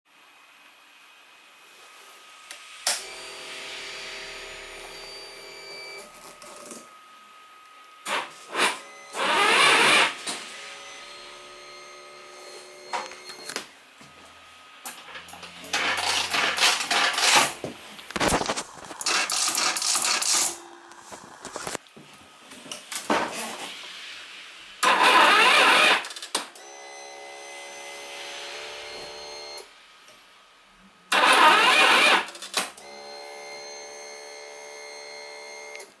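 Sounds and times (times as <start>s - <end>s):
steady whine: 1.5s - 23.1s
scooter engine cranking with grinding: 15.3s - 17.6s.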